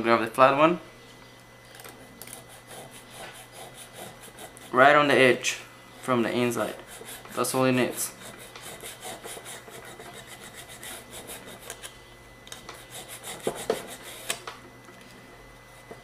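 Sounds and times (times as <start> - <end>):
file scraping metal: 2.3 - 4.8, 6.6 - 11.9, 12.7 - 14.3.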